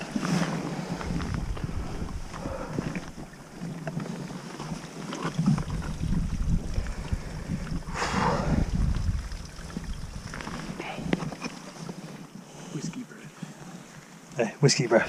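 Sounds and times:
wind buffeting microphone: 0:00.0 - 0:03.9, 0:05.2 - 0:11.4
hands and boots scraping wet rock: 0:00.0 - 0:12.2.

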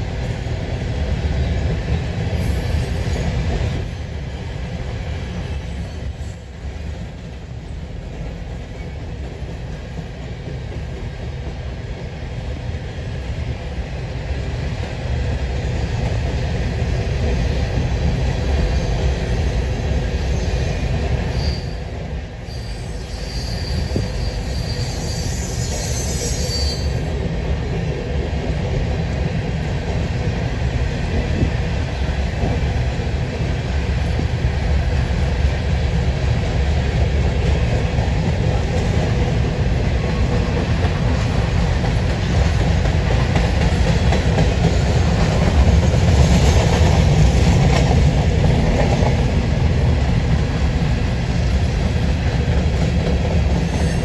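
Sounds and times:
freight train wheels rumbling: 0:00.0 - 0:54.0
wheel squeal: 0:21.4 - 0:27.2.

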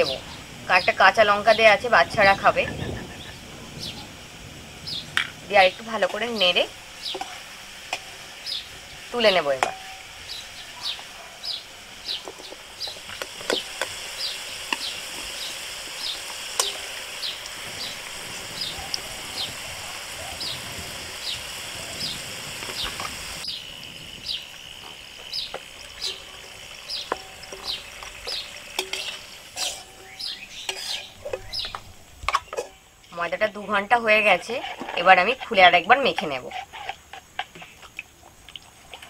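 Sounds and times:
potatoes sizzling in hot oil: 0:00.0 - 0:39.0
bird chirping: 0:02.5 - 0:04.2, 0:04.8 - 0:07.4, 0:08.4 - 0:24.6, 0:25.2 - 0:33.3.

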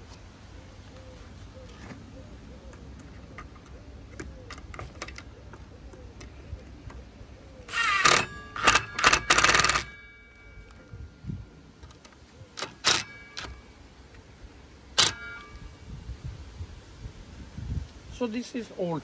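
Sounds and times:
cordless screwdriver motor whining: 0:07.7 - 0:09.9.

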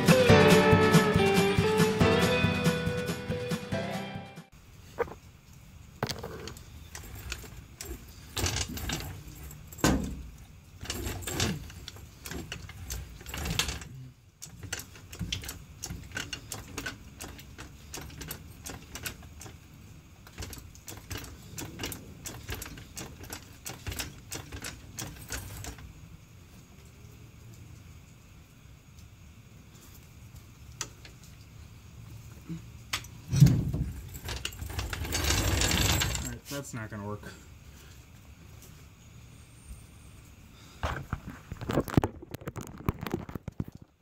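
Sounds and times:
floor jack clicking and clanking: 0:33.3 - 0:36.4.

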